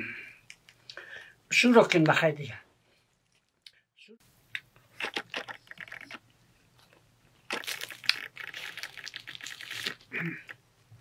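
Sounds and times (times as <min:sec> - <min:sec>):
flatbread torn apart crackling: 0:07.5 - 0:10.1.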